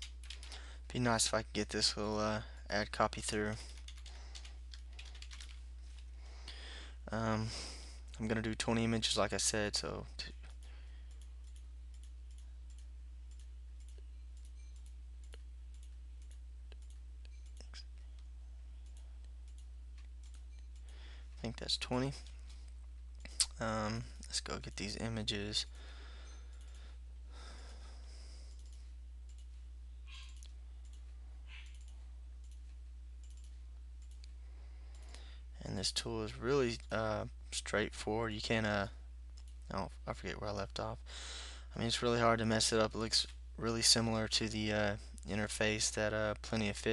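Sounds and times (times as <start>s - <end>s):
low electrical hum: 0.0s - 46.9s
computer mouse clicking: 3.7s - 6.1s, 10.5s - 20.9s, 28.5s - 29.5s, 30.1s - 35.2s.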